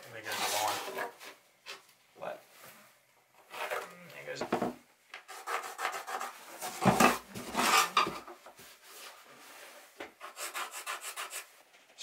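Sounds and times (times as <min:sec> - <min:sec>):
pencil scraping on fibreglass: 0:10.2 - 0:11.5.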